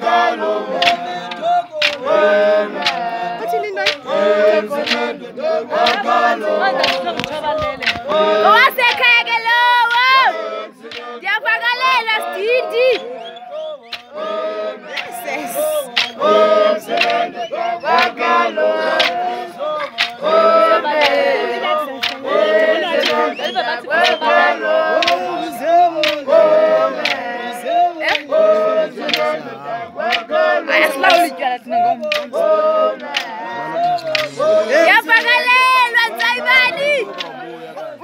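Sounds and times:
group singing and chanting: 0.0 - 38.0
sharp percussive strikes: 0.7 - 3.2, 4.8 - 5.1, 15.9 - 18.3.

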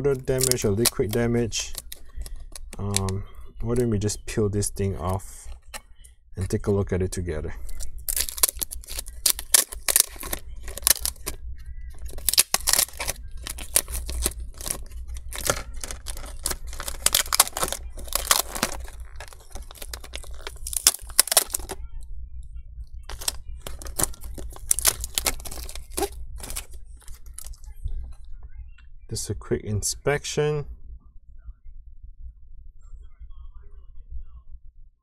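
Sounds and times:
adhesive film peeling and crinkling: 0.1 - 3.2, 7.7 - 11.4, 12.0 - 21.8, 23.1 - 27.6.

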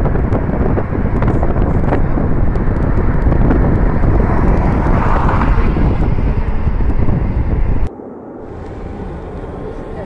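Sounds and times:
car road noise: 0.0 - 10.0
wind rumbling on microphone: 0.0 - 10.0
vehicle passing: 0.4 - 10.0.

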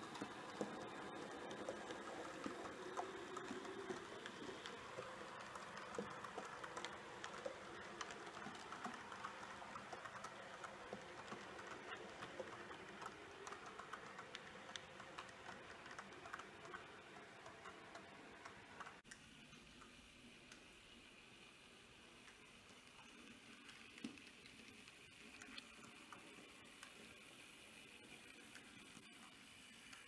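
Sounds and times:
model train wheels clicking on rails: 0.0 - 19.2.

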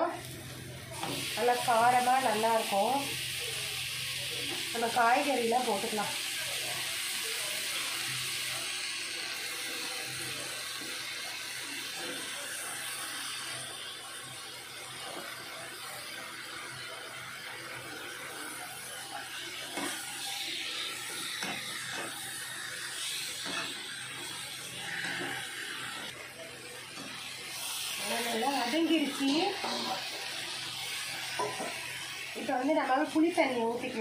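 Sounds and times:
vegetables sizzling in a pan: 0.0 - 34.0
spatula scraping a pan: 23.0 - 26.1, 27.0 - 31.9.

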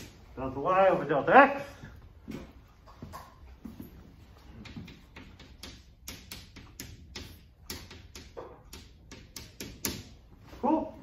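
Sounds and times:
chalk tapping on chalkboard: 4.6 - 10.2.

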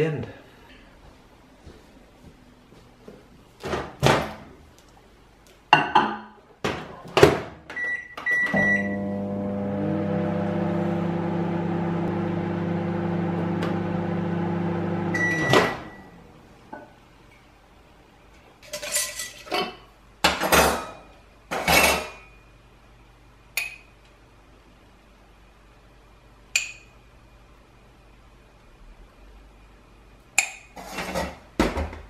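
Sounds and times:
microwave oven humming: 8.3 - 16.6
short beep: 15.1 - 16.1.

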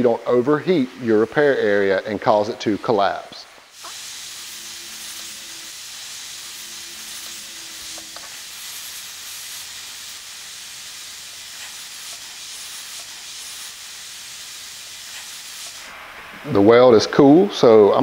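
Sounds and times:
hot gas hissing from welder nozzle: 3.6 - 16.7.

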